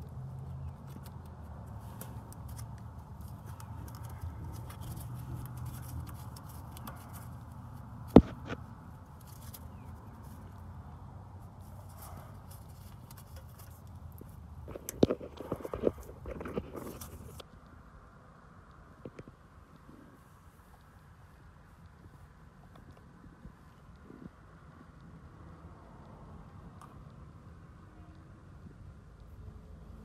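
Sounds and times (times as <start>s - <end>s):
gloved hands handling wiring: 0.0s - 10.8s, 11.4s - 17.4s.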